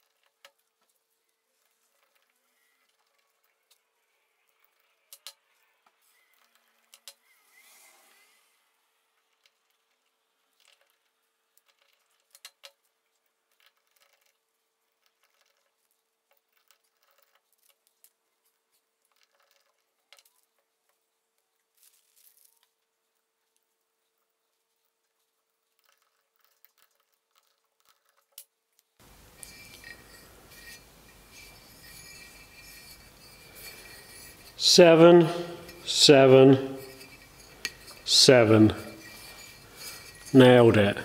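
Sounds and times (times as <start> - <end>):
small bolts and washers clicking: 1.6 - 7.3, 9.2 - 21.0, 25.7 - 40.6.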